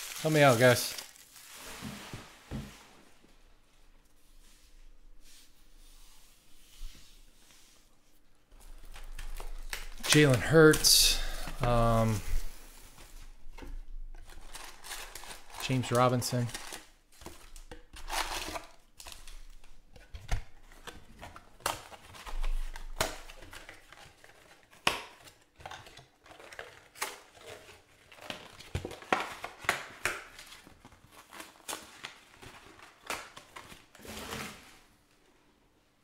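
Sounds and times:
foil packs crinkling: 0.0 - 2.3, 14.1 - 19.8, 20.6 - 34.1.

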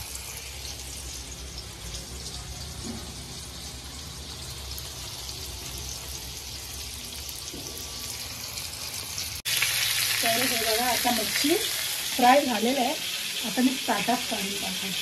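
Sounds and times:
fish sizzling in hot oil: 0.0 - 15.0.

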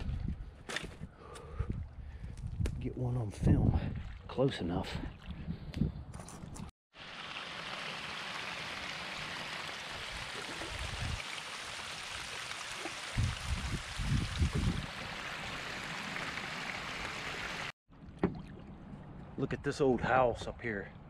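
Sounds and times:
water splashing down a bank: 6.9 - 18.7.

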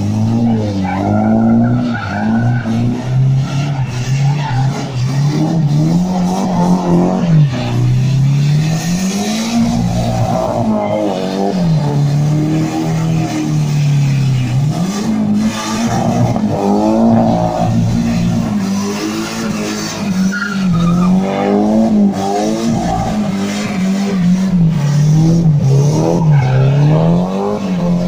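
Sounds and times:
car engine revving: 0.0 - 28.0
tyres squealing: 13.8 - 21.6.

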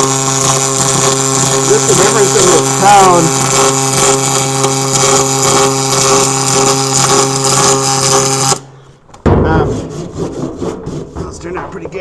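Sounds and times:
welding arc crackling buzz: 0.0 - 8.7.

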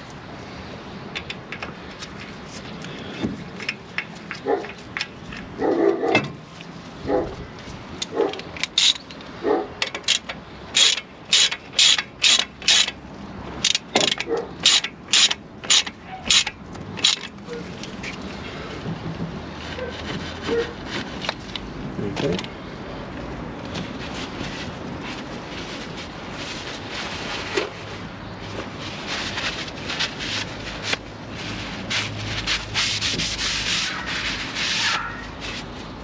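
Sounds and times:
ratchet wrench clicking: 8.4 - 13.0, 13.6 - 17.3.

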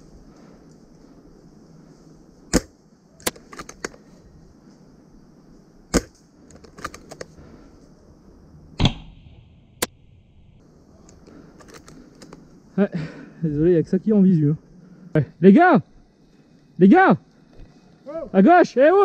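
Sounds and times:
airsoft rifle shots: 2.5 - 3.9, 5.9 - 6.2, 8.8 - 9.9.

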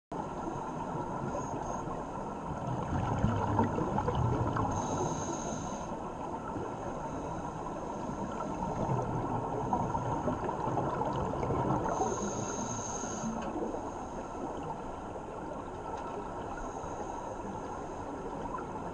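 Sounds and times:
gurgling exhaled bubbles underwater: 2.4 - 5.0, 8.2 - 12.3
regulator breath hiss: 4.7 - 6.0, 11.9 - 14.3.

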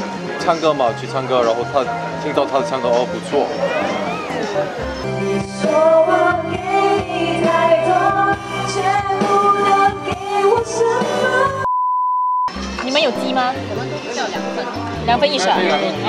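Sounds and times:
karaoke backing track: 0.0 - 11.7, 12.5 - 16.0
woman singing into microphone: 5.1 - 11.7.

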